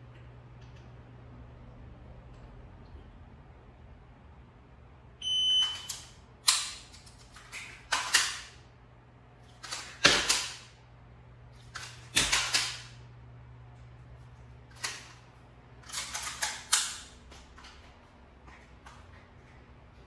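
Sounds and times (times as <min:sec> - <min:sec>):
electronic timer beep: 0:05.2 - 0:06.0
pistol clacking and clicking: 0:05.8 - 0:08.5, 0:15.8 - 0:17.1.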